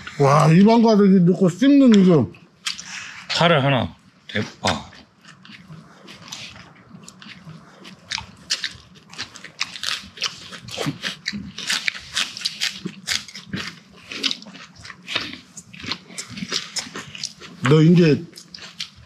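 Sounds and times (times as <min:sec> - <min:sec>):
person chewing crunchy food: 0:01.8 - 0:03.4, 0:04.3 - 0:19.0.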